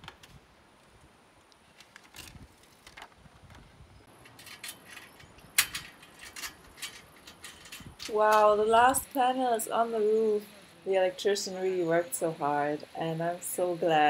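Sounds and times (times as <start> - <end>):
metallic clicks and knocks: 4.1 - 8.6.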